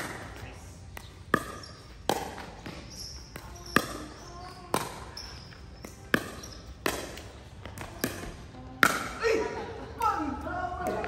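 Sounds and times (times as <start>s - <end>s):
shoes squeaking on court floor: 0.0s - 8.5s
racket hitting ball: 0.0s - 9.4s.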